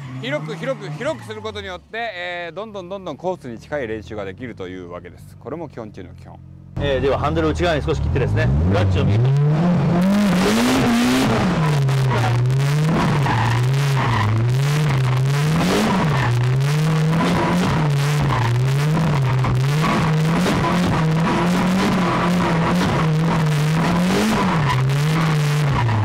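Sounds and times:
tyre squeal: 0.0s - 1.6s
car engine revving: 6.4s - 26.0s.

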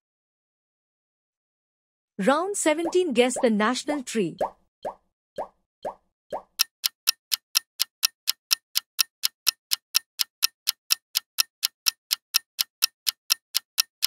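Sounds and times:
clock ticking: 6.4s - 14.0s.

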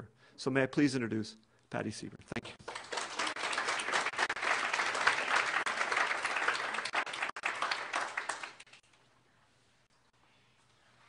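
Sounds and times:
audience applauding: 2.5s - 8.8s.

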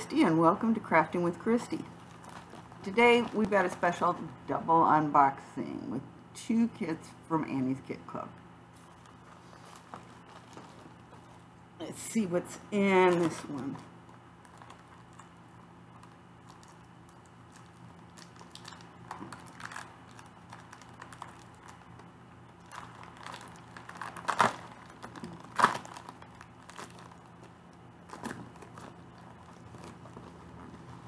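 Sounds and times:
packaging crinkling and tearing: 1.7s - 4.0s, 12.9s - 31.0s.

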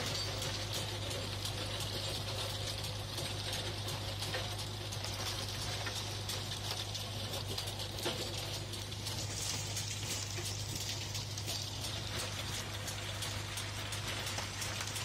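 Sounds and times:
tractor engine drone: 7.8s - 15.0s.

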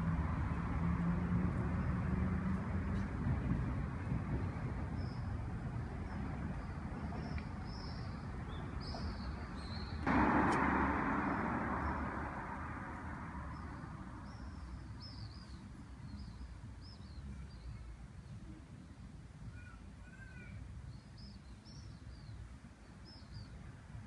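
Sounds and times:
road traffic rushing: 0.0s - 17.3s
small birds chirping: 6.0s - 10.1s.

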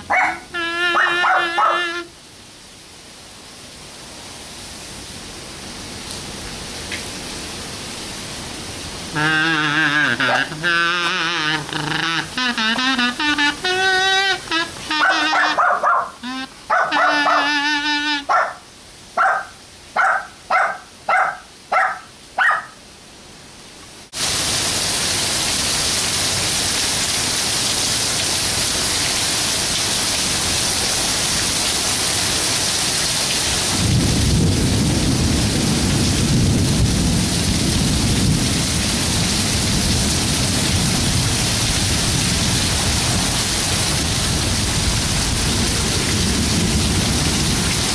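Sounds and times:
small dog yapping: 0.0s - 2.0s, 10.2s - 10.6s, 15.0s - 17.6s, 18.2s - 18.6s, 19.2s - 22.8s
heavy rain pouring: 0.0s - 22.4s, 24.0s - 47.9s
kazoo buzzing a tune: 0.5s - 2.1s, 9.2s - 15.6s, 16.2s - 18.3s
low rumbling thunder: 33.7s - 43.3s, 44.0s - 47.9s.

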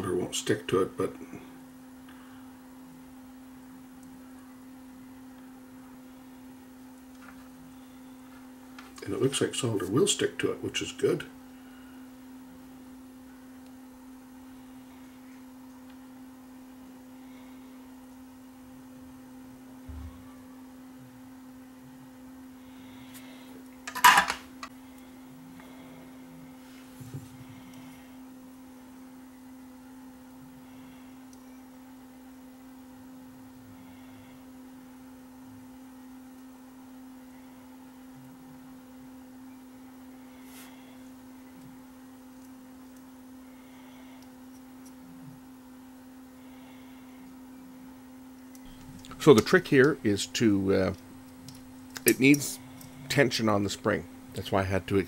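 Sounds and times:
low electrical hum: 0.0s - 55.0s
small parts clattering: 23.9s - 24.4s.

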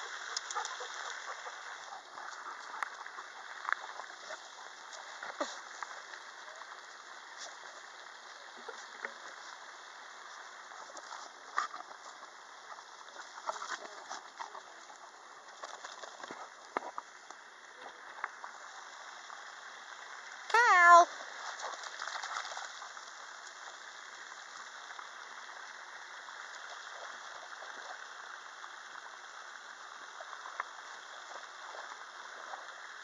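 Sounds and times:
steady outdoor hiss: 0.0s - 33.0s.

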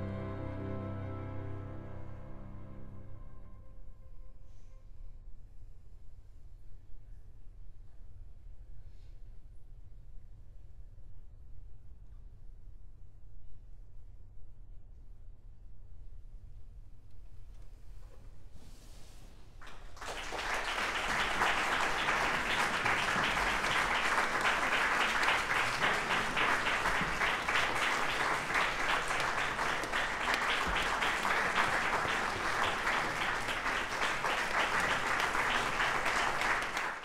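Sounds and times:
audience applause: 19.6s - 37.0s.

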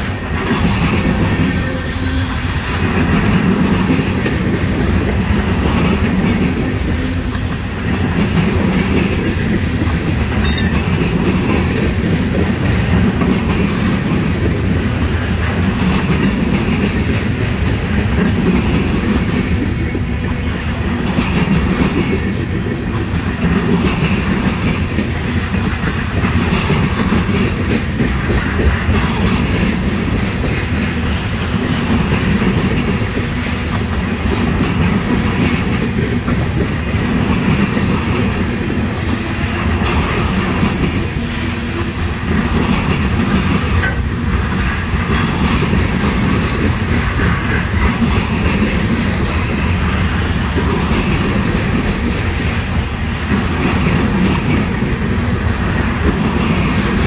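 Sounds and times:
steel wheels rolling on rails: 0.0s - 57.0s
wheels and couplings clattering: 2.9s - 13.7s.

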